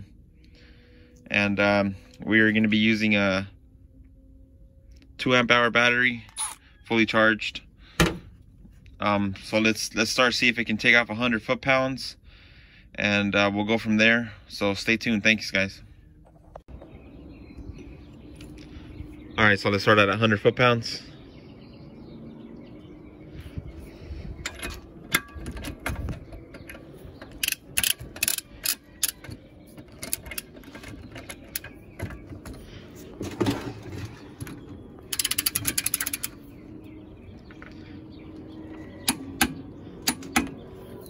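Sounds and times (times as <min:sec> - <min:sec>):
ratchet clicks: 0:27.2 - 0:29.2, 0:35.1 - 0:36.4.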